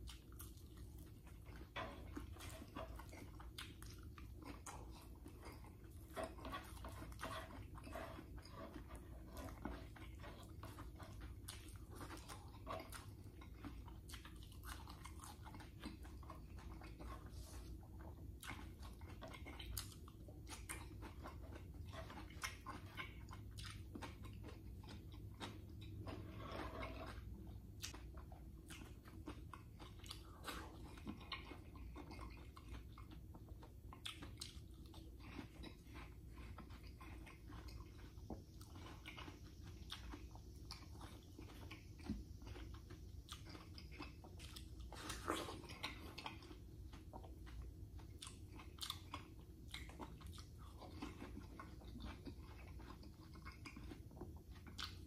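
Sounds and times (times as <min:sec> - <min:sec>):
low room hum: 0:00.0 - 0:55.0
person chewing watermelon: 0:00.0 - 0:55.0.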